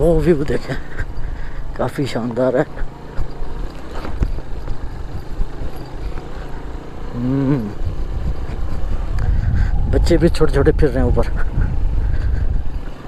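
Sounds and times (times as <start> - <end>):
motorcycle engine running: 0.0 - 13.0
knocks and rattles over stones: 3.1 - 6.4
short vocal sound: 7.1 - 7.9.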